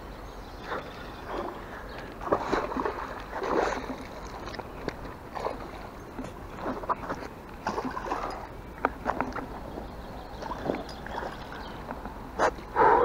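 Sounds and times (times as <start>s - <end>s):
fish splashing in water: 2.2s - 12.2s.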